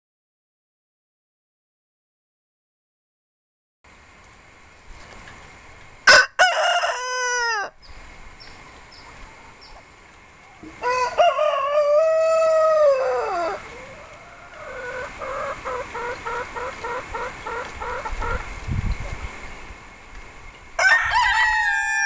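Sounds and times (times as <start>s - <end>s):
rooster crowing: 6.1s - 7.8s, 10.8s - 16.7s, 20.8s - 22.0s.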